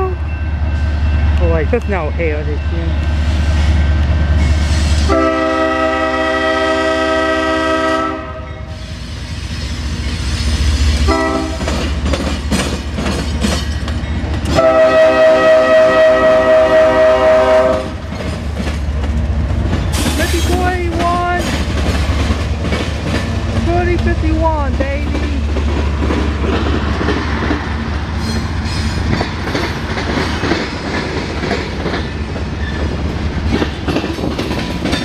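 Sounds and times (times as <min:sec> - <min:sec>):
locomotive air horn blasts: 0:05.0 - 0:08.5, 0:11.1 - 0:11.6, 0:14.5 - 0:18.0
locomotive engine rumble: 0:08.7 - 0:35.0
wheels clacking over rail joints: 0:11.1 - 0:14.9, 0:17.5 - 0:35.0.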